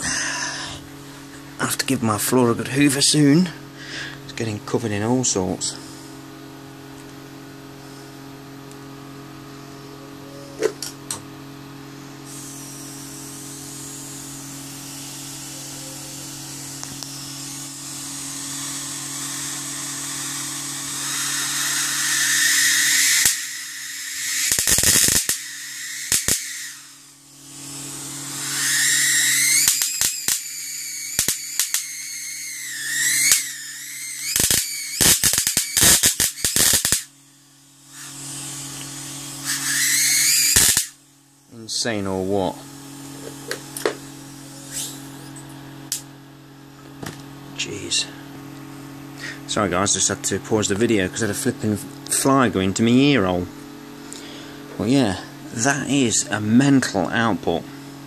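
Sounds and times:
high-pitched whine: 0.0s - 58.0s
steady low hum: 0.0s - 58.0s
hiss: 12.2s - 41.0s, 44.6s - 45.2s
electrical arc snapping: 12.3s - 37.2s, 37.9s - 41.0s, 43.0s - 46.1s.

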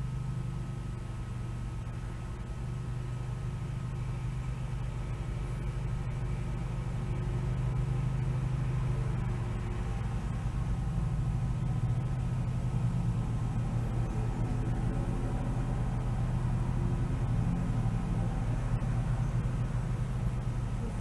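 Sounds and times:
faint steady tones: 0.0s - 21.0s
low hum and rumble: 0.0s - 21.0s.

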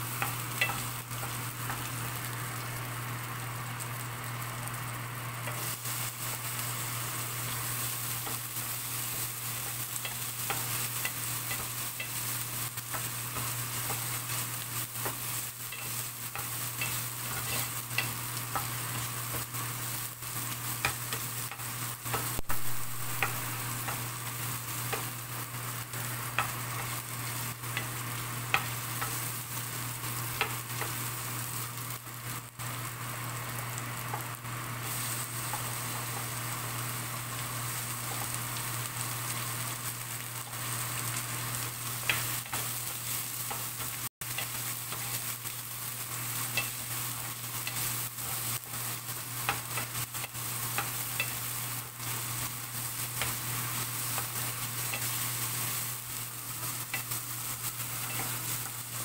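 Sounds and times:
spices sizzling in hot oil: 0.0s - 59.0s
spatula scraping a pan: 15.0s - 19.5s.

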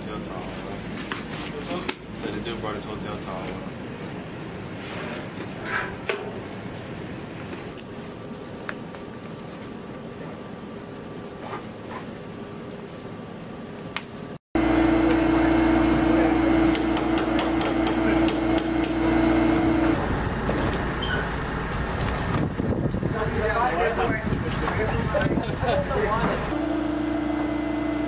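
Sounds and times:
loud steady machine hum: 14.6s - 28.0s
sharp taps of tool on metal: 16.7s - 19.0s.

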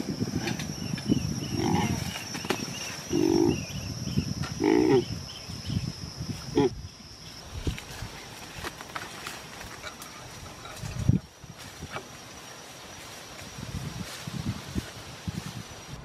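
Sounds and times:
scuffing in leaf litter: 11.6s - 15.6s.

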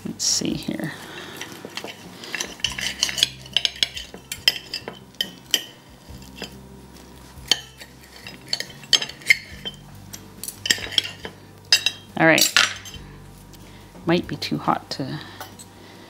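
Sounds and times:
knife and fork scraping on plate: 1.1s - 6.6s, 7.4s - 13.0s.

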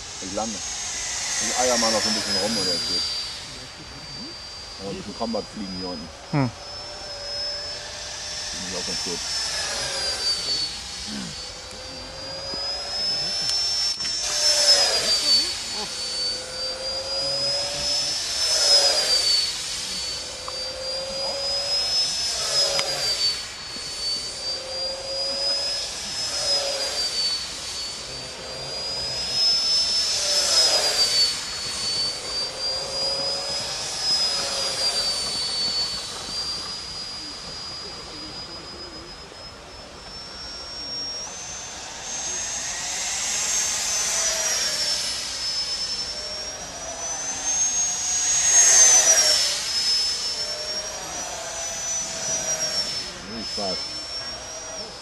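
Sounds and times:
model jet fan whining: 0.0s - 55.0s.

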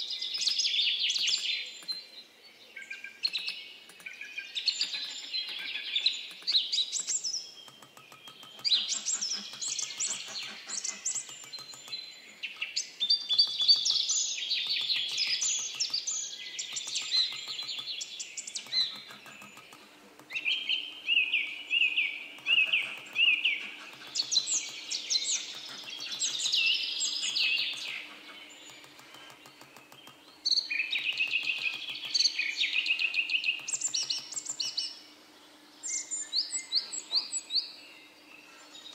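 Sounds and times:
songbird singing: 0.0s - 38.9s
hammer tapping chisel on metal: 7.6s - 12.0s.

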